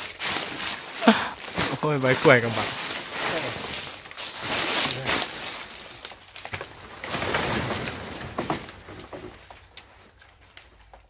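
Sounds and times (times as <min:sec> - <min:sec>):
rustling of leaves: 0:00.0 - 0:11.0
sharp clicks of plant handling: 0:05.9 - 0:06.8, 0:09.0 - 0:11.0.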